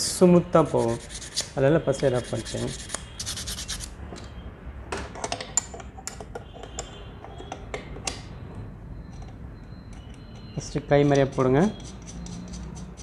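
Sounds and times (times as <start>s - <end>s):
rapid scraping strokes: 0.6s - 3.9s.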